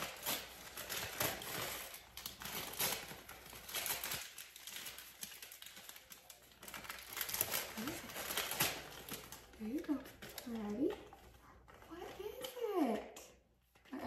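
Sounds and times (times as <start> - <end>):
wrapping paper crinkling: 0.0 - 13.0.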